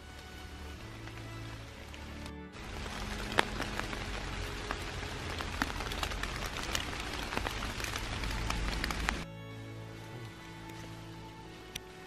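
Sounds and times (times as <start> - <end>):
leaves and twigs rustling: 0.0 - 9.3
twig snapping: 0.1 - 9.2.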